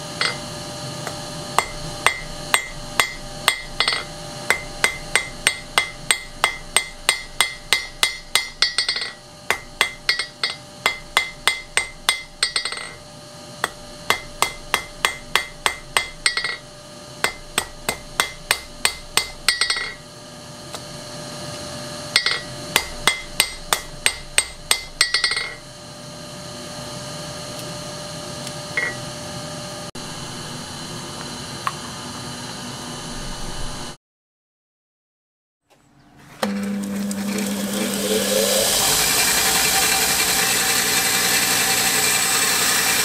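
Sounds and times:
hammer striking steel on anvil: 0.0s - 13.0s, 13.6s - 20.0s, 22.1s - 25.6s, 28.8s - 29.0s
steady hum: 0.0s - 34.0s.

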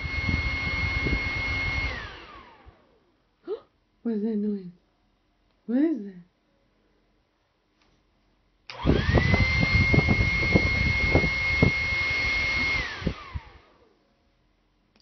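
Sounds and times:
hair dryer running: 0.0s - 3.0s, 8.7s - 14.0s.

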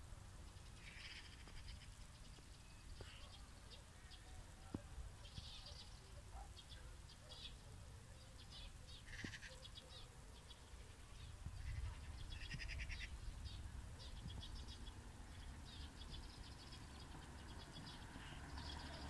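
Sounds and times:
low wind rumble on microphone: 11.1s - 18.1s.

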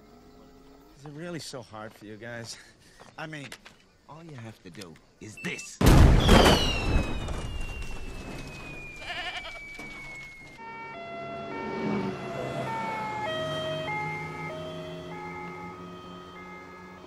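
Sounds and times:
blast: 5.8s - 8.0s
falling whistle tone: 6.2s - 10.7s.

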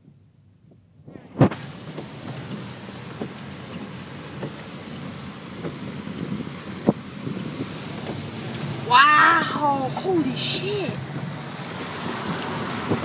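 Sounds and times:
car tyres hissing on wet street: 1.0s - 13.0s
small knocks: 1.5s - 4.7s.

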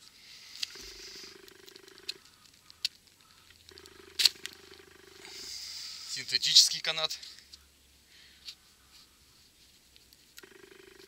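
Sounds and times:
sharp clicks: 0.6s - 5.0s.

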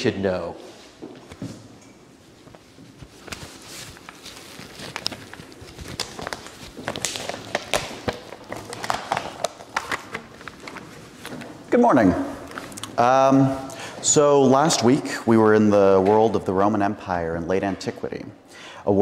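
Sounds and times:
paper rustling: 2.3s - 11.6s.

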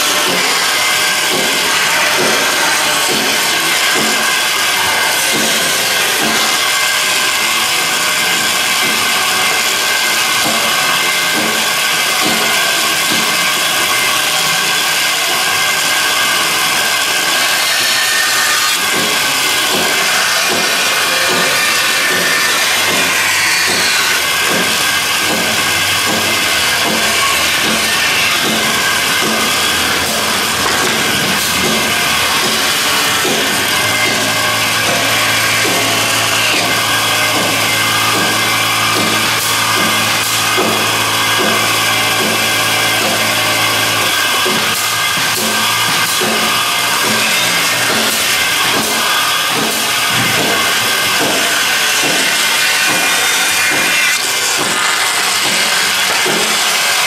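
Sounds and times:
music with regular beat: 0.0s - 6.7s, 18.5s - 57.0s
hissing workshop noise: 0.0s - 57.0s.

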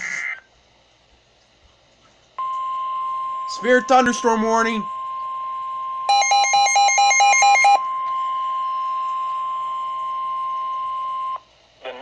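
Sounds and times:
rapid beeping: 2.4s - 11.4s
steady alarm tone: 2.4s - 11.4s.

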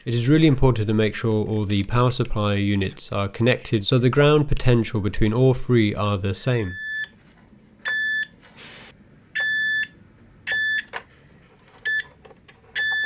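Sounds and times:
multimeter continuity beeps: 6.6s - 7.1s, 7.8s - 8.3s, 9.4s - 10.9s, 11.9s - 12.1s, 12.8s - 13.0s.

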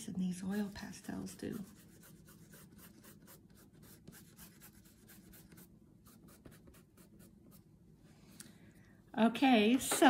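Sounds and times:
fingertips rubbing pastel on paper: 0.2s - 7.7s.

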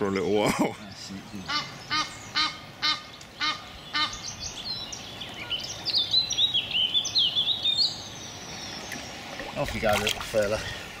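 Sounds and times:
songbird twittering: 0.8s - 10.6s
duck-like waterbird calls: 1.4s - 4.3s.

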